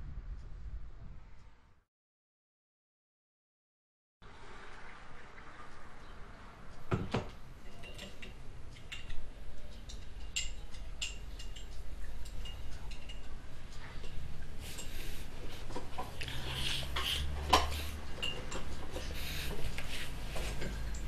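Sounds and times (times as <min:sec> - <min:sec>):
dishes and cutlery clinking: 0:07.0 - 0:09.2, 0:09.9 - 0:15.0, 0:15.6 - 0:21.0.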